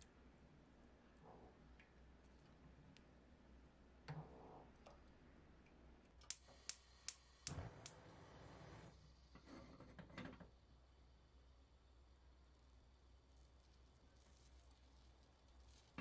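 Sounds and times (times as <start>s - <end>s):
sharp clicks at stove: 6.2s - 8.0s.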